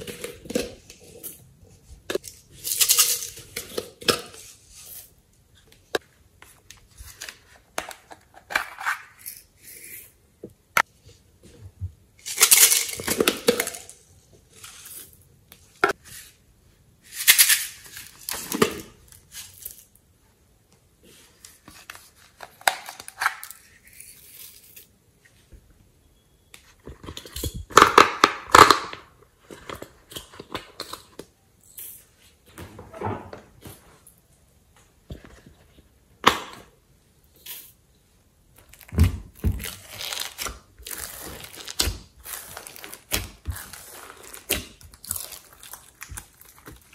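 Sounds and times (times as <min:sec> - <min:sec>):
slime squishing and crackling: 0:38.6 - 0:46.9.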